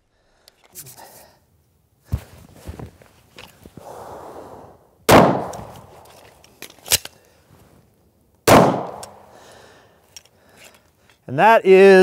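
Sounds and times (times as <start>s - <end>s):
pistol shots with echo: 5.1s - 5.7s, 8.5s - 9.3s
pistol magazine and slide clicks: 6.4s - 7.2s, 8.7s - 9.2s.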